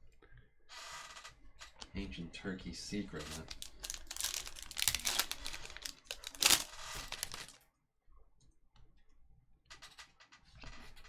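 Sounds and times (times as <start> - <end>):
foil wrapper crinkling and tearing: 3.2 - 7.6.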